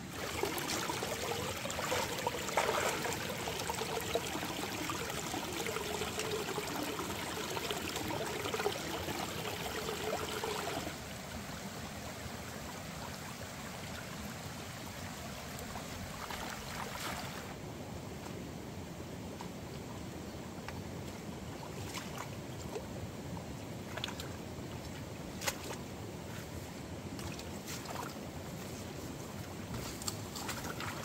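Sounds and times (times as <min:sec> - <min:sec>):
stream running over rocks: 0:00.0 - 0:17.7.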